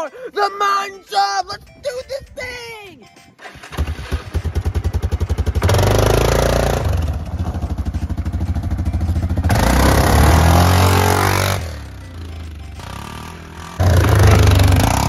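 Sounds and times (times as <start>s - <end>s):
atv engine accelerating: 3.4s - 15.0s
tyres on gravel: 3.5s - 15.0s.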